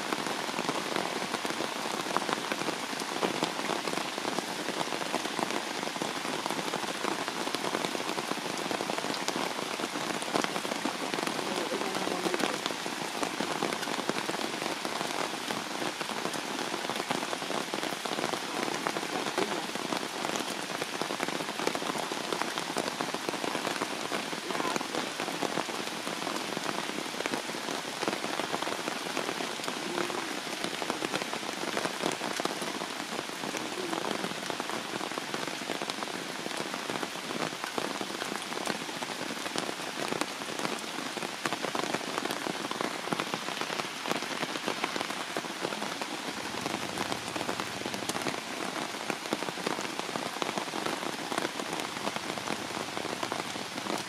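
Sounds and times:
heavy rain: 0.0s - 54.0s.

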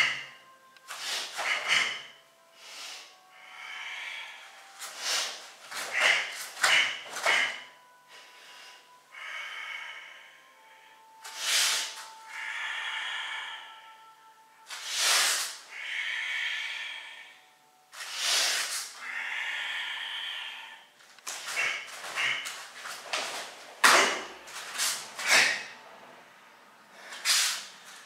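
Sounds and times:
sharp hissing exhales: 0.9s - 7.6s, 11.3s - 13.5s, 14.7s - 17.3s, 18.0s - 22.6s, 24.7s - 25.7s, 27.1s - 27.7s
soft breathing in: 0.9s - 23.6s.

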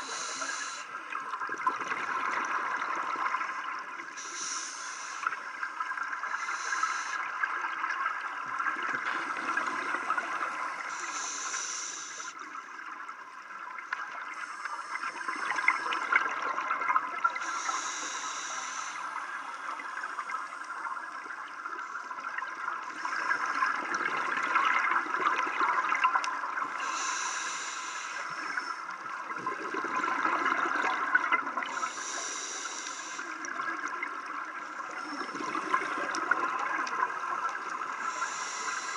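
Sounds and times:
scuba regulator breathing bubbles: 0.0s - 1.0s, 1.8s - 7.8s, 8.6s - 12.4s, 14.3s - 20.5s, 26.6s - 33.7s, 34.8s - 38.9s
underwater rush: 0.0s - 38.9s.

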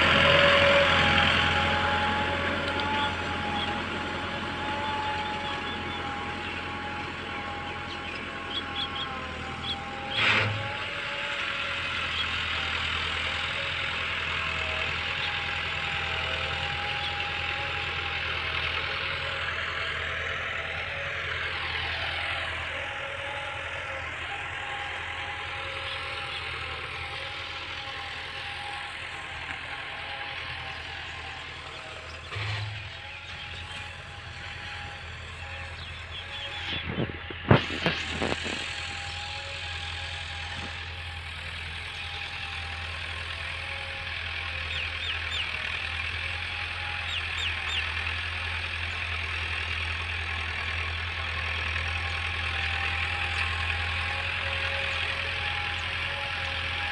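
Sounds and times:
tractor diesel engine under load: 0.0s - 56.9s.

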